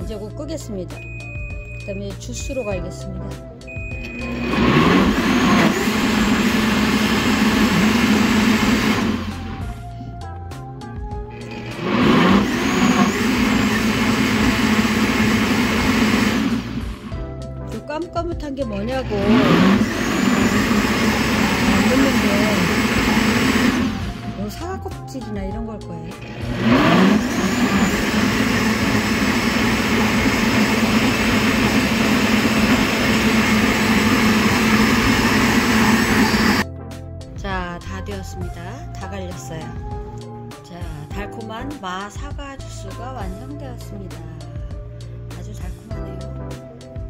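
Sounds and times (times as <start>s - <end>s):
blender motor running: 3.8s - 9.9s, 11.3s - 17.4s, 18.8s - 24.6s, 26.0s - 36.6s.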